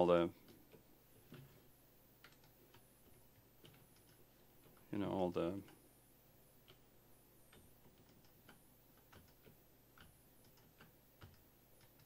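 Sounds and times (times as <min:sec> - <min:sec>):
computer mouse and keyboard clicks: 0:00.4 - 0:01.6, 0:02.2 - 0:04.9, 0:07.5 - 0:12.0.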